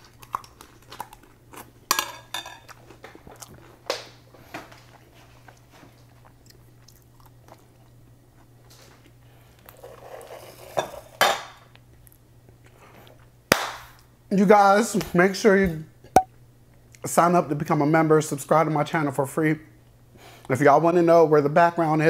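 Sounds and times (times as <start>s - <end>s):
person chewing: 0.0s - 2.0s, 2.6s - 9.7s
low steady hum: 0.0s - 22.0s.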